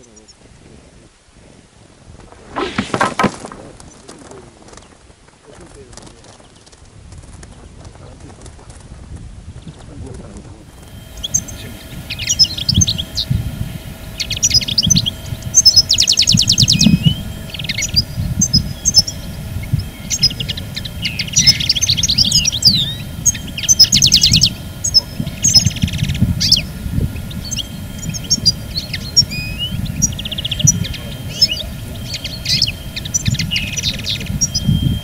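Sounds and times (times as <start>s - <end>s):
songbirds chirping and trilling: 0.0s - 0.5s, 9.5s - 35.0s
low rumble: 10.7s - 35.0s.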